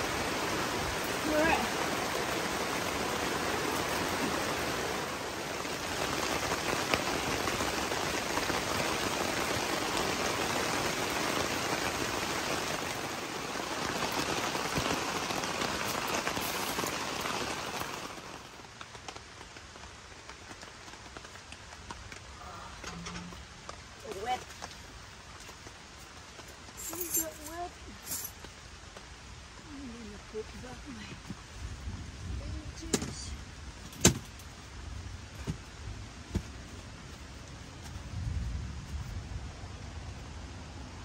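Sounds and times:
raindrops ticking: 0.0 - 31.6
steady rain hissing: 0.0 - 41.0.

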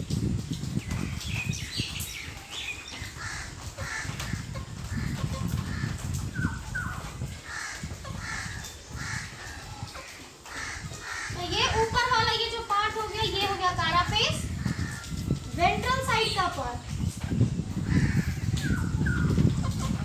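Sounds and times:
crows cawing: 3.2 - 6.0, 7.4 - 11.5, 17.8 - 18.5.

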